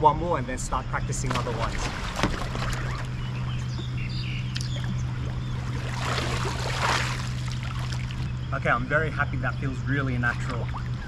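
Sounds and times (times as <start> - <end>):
steady low hum: 0.0 - 11.0
water splashing around kayak: 1.2 - 3.5, 4.5 - 8.3, 10.0 - 11.0
rush of water: 5.8 - 8.2.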